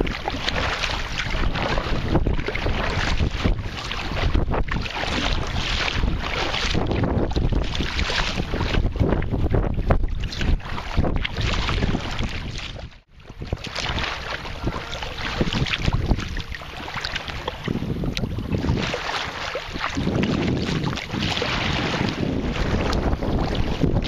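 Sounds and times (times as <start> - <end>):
waves slapping against hull: 0.0 - 24.0
wind buffeting microphone: 0.0 - 24.0.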